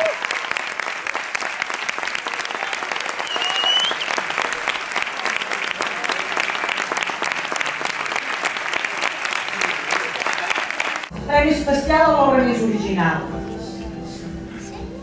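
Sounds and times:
audience applauding: 0.0 - 11.1.

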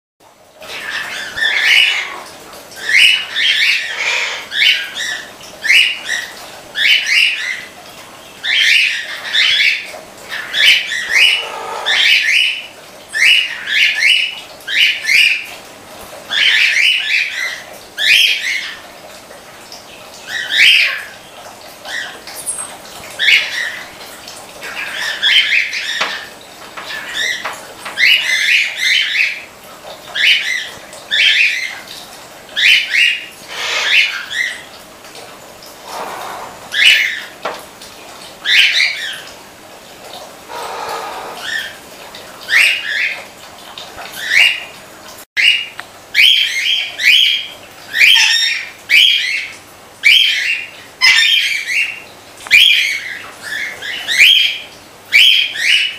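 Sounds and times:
birds chirping and squawking: 0.6 - 15.5, 16.3 - 18.9, 21.8 - 24.0, 24.6 - 29.5, 32.6 - 34.8, 35.7 - 37.4, 40.4 - 43.3, 44.2 - 44.8, 45.4 - 54.6.

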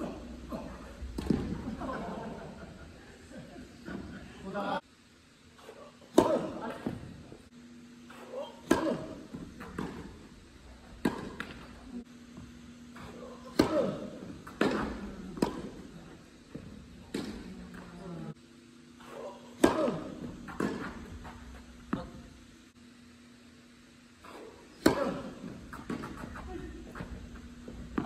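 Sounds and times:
tennis balls struck by rackets: 0.0 - 2.2, 6.1 - 7.4, 8.6 - 18.2, 19.1 - 22.4, 24.2 - 28.0
tennis balls bouncing on hard court: 0.6 - 2.0, 8.6 - 18.1, 19.6 - 22.4, 24.7 - 28.0.

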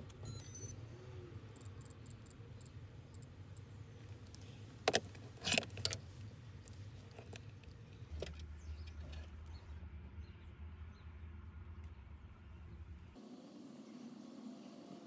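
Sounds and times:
electronic beeps: 0.2 - 0.9.

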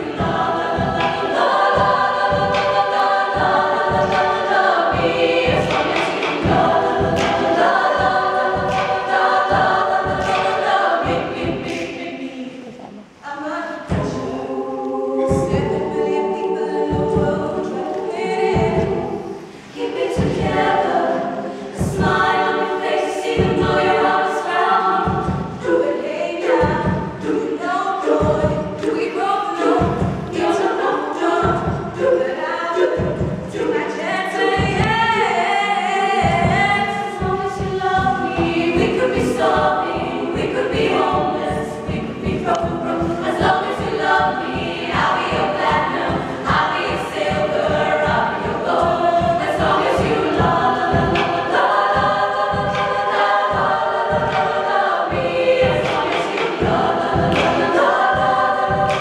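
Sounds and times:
marching bass drum beats: 0.0 - 11.8, 15.3 - 16.0, 16.8 - 17.7, 18.3 - 21.2, 21.8 - 27.4, 28.2 - 30.6, 31.4 - 32.1, 34.5 - 35.3, 36.2 - 59.0
women's choir singing: 0.0 - 59.0.

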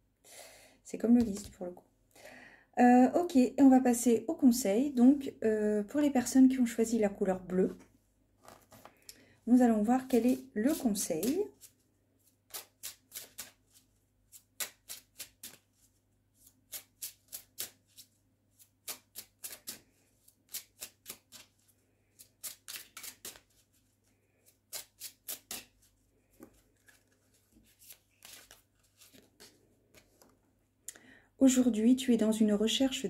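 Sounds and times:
cards being shuffled: 8.4 - 9.0, 12.5 - 15.8, 16.4 - 21.6, 22.2 - 30.4.

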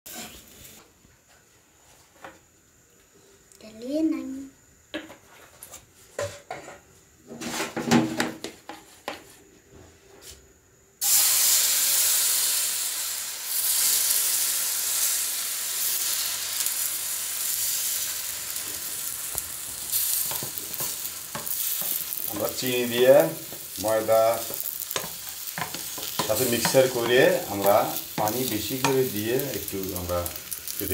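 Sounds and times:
batter sizzling in hot pan: 11.0 - 30.9.

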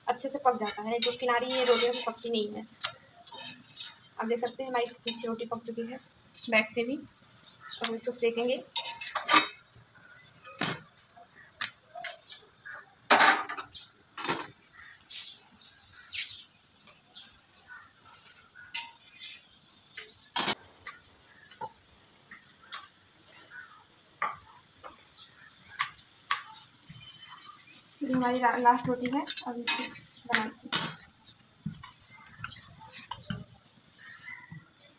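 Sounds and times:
metal tongs clinking on iron pan: 0.2 - 4.1, 4.7 - 5.8, 8.7 - 9.7, 12.0 - 12.5, 18.0 - 19.2, 29.1 - 31.1.

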